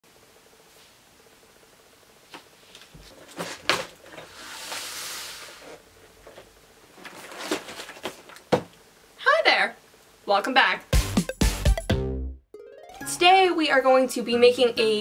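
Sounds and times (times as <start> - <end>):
rustling hiss: 0.1 - 10.4.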